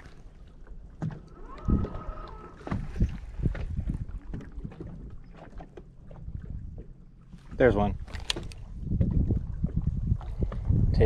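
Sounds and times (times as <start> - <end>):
water slapping against boat hull: 0.0 - 11.0
short whirring whine: 1.3 - 3.2.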